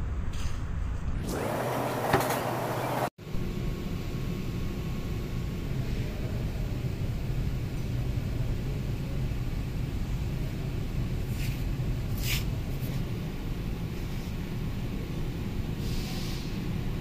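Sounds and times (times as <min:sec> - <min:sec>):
workshop background rumble: 0:00.4 - 0:17.0
short hisses: 0:15.8 - 0:16.6.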